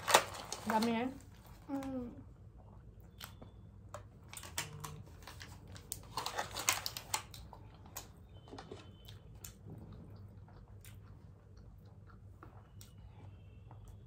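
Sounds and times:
foil trays crinkling: 0.0 - 1.2, 4.4 - 7.3
person chewing: 8.9 - 14.0.

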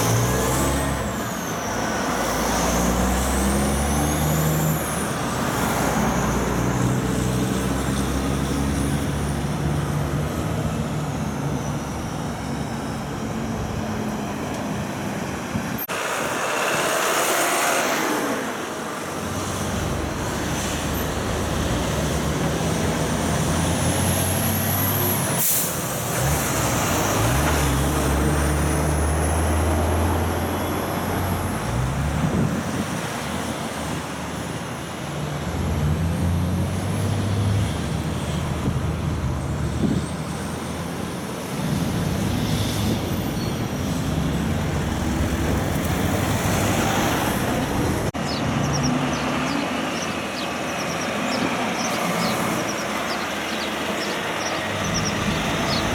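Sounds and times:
trucks' diesel engines pulling: 0.0 - 55.9
air brake hiss: 25.4 - 26.0.

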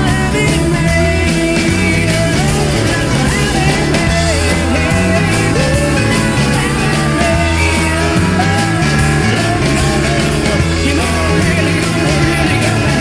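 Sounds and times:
rock music with singing: 0.0 - 13.0.

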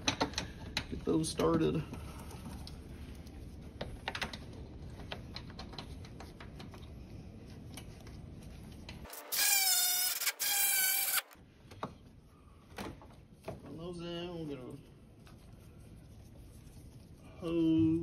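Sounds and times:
cordless electric ratchet whining: 9.1 - 11.4.

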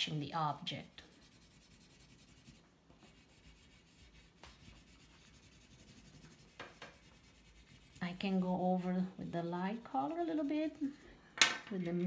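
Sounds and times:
oil pastel scratching on paper: 0.0 - 11.0.

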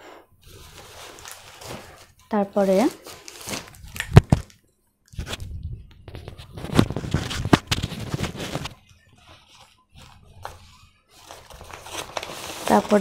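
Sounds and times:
packaging rustling and crinkling: 0.4 - 13.0.

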